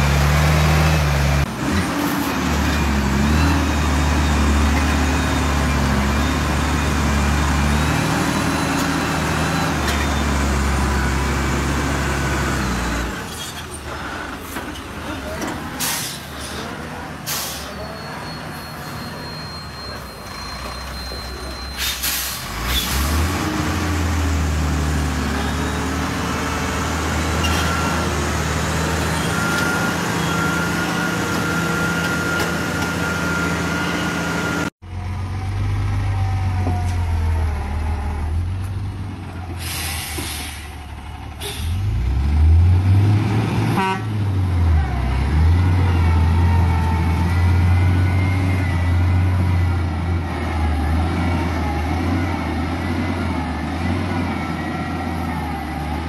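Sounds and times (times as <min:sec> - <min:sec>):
dump truck engine drone: 0:00.0 - 0:56.0
engine revving: 0:22.5 - 0:34.7.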